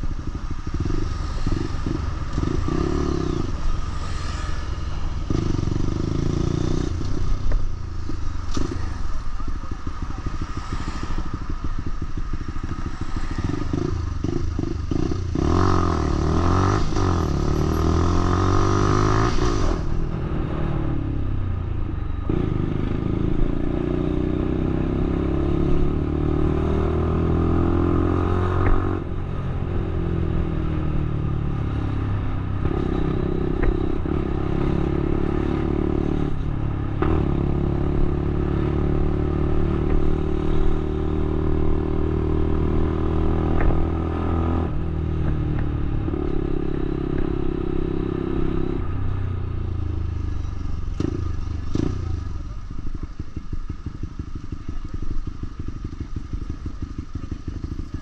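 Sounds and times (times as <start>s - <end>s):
motorcycle engine shifting gears: 22.3s - 58.0s.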